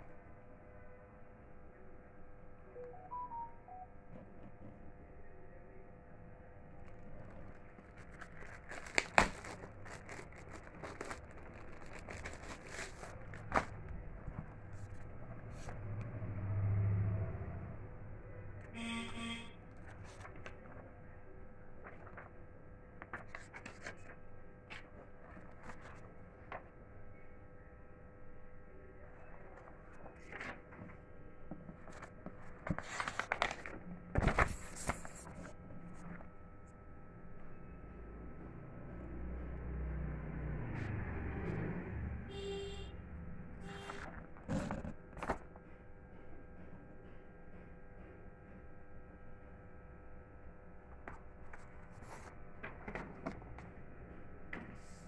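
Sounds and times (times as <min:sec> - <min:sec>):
plastic packaging crinkling: 0:07.2 - 0:14.4, 0:31.8 - 0:35.4.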